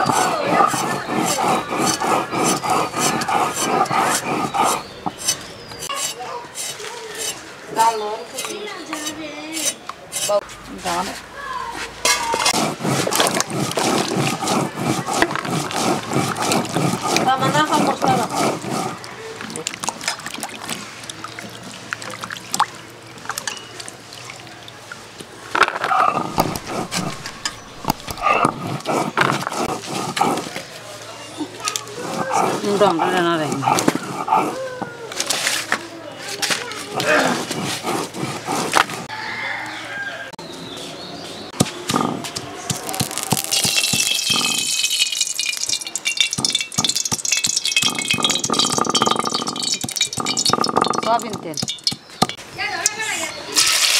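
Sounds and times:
water sloshing in steel bowl: 12.1s - 30.6s, 42.8s - 52.4s
oil pouring into metal pan: 42.8s - 52.0s.

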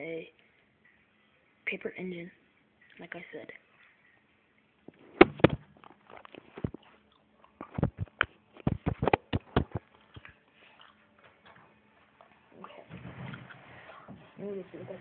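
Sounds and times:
phone being handled: 4.9s - 6.8s, 7.6s - 10.4s.

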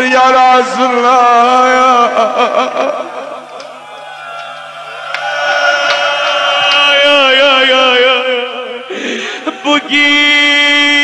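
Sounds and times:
man singing a lament: 0.0s - 3.4s, 5.7s - 11.0s.

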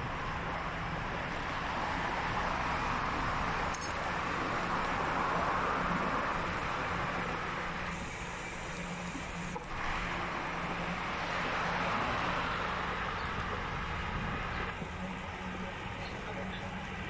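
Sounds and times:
city road traffic: 0.0s - 17.0s.

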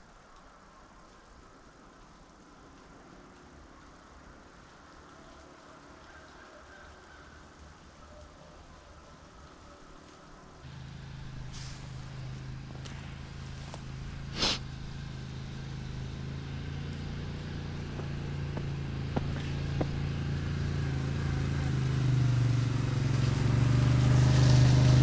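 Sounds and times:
atv engine running: 10.7s - 25.0s
short burst of noise: 14.4s - 14.6s.

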